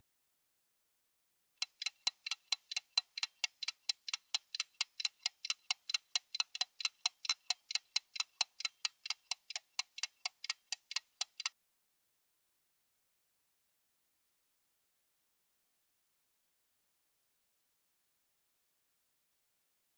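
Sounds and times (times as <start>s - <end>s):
fast sharp ticking: 1.6s - 11.5s.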